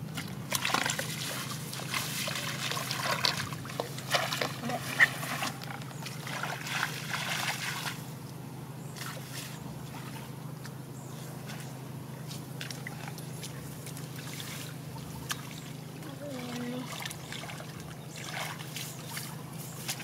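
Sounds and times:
steady low hum: 0:00.0 - 0:20.0
hands splashing in muddy water: 0:00.1 - 0:08.0, 0:16.4 - 0:20.0.

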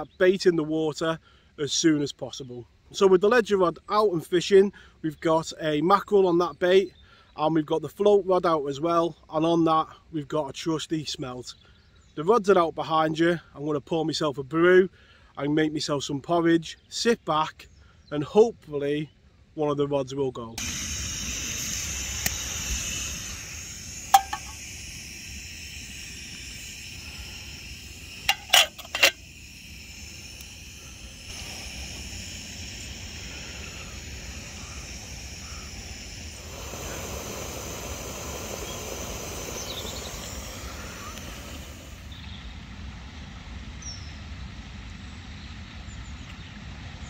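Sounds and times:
outdoor background noise: 0:00.0 - 0:47.0
gas stove hissing: 0:20.6 - 0:42.2
sharp clicks: 0:22.0 - 0:23.4, 0:25.9 - 0:32.2.

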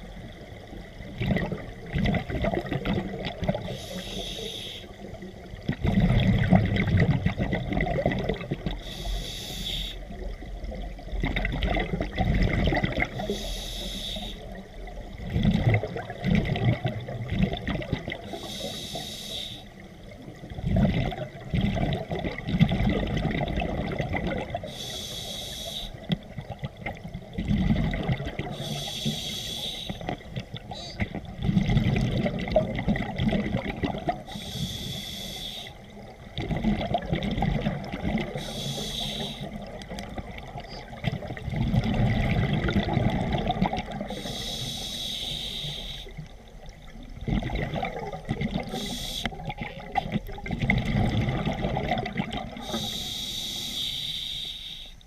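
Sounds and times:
exhaled bubbles rumbling: 0:00.0 - 0:04.0, 0:05.0 - 0:09.0, 0:10.0 - 0:13.4, 0:14.4 - 0:18.5, 0:19.8 - 0:24.8, 0:26.0 - 0:28.9, 0:30.0 - 0:34.4, 0:35.7 - 0:45.0, 0:46.1 - 0:53.0
regulator hissing inhale: 0:03.7 - 0:05.0, 0:08.8 - 0:10.1, 0:13.2 - 0:14.6, 0:18.3 - 0:19.8, 0:24.7 - 0:26.0, 0:28.6 - 0:30.2, 0:34.3 - 0:35.9, 0:38.4 - 0:39.6, 0:44.1 - 0:46.3, 0:48.7 - 0:49.5, 0:52.6 - 0:55.0.

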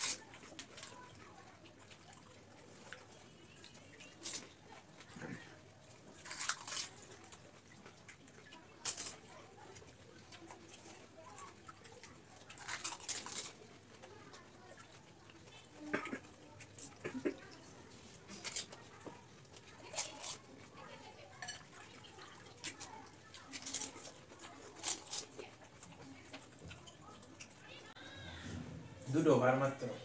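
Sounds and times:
crisp shells crunching: 0:06.2 - 0:07.2, 0:08.8 - 0:09.2, 0:12.5 - 0:13.7, 0:22.5 - 0:25.5.

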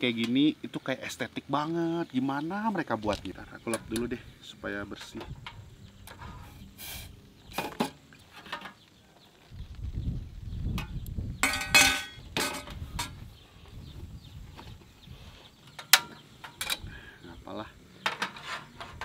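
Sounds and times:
sharp ringing clanks: 0:11.4 - 0:12.7
metal pot clattering: 0:11.4 - 0:13.1.

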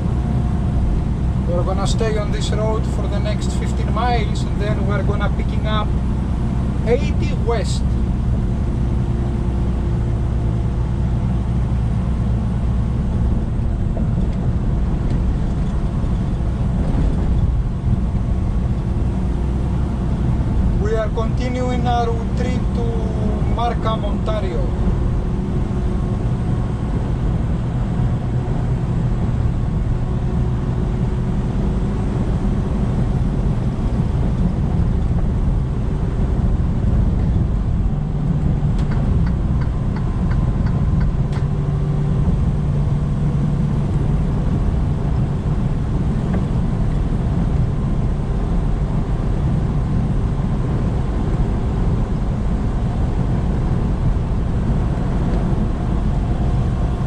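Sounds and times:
road noise: 0:00.0 - 0:57.0
truck diesel engine droning: 0:00.0 - 0:57.0.

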